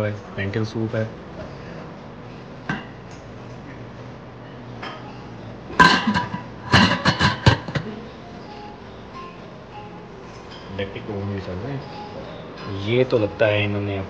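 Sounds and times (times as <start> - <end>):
metal pot lid clanking: 5.8 - 7.9.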